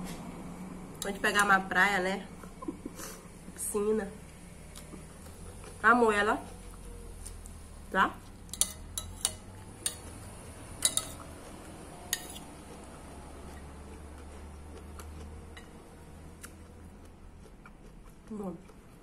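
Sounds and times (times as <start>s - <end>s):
cutlery clinking on a plate: 8.5s - 10.1s, 10.8s - 11.2s, 12.1s - 12.4s.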